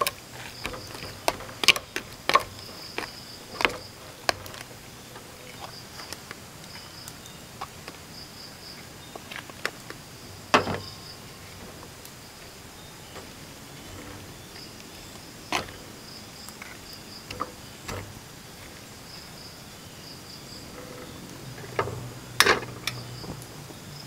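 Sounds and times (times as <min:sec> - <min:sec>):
metal spoon scraping plastic tubs: 0:00.0 - 0:07.8, 0:09.1 - 0:23.6
crickets trilling: 0:00.0 - 0:24.0.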